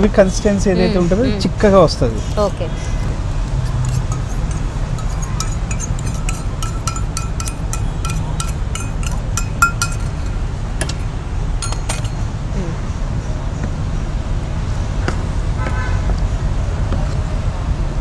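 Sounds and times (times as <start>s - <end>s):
steady low hum: 0.0s - 15.6s
fork clinking against metal bowl: 3.6s - 10.4s.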